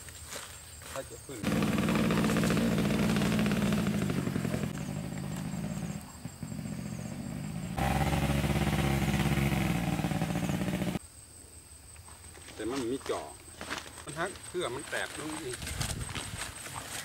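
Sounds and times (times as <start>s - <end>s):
engine running: 1.4s - 11.0s.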